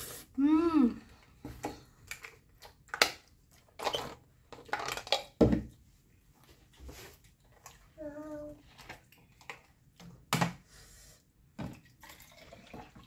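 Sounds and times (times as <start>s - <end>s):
plastic bottle clicks and rattles: 1.6s - 5.7s.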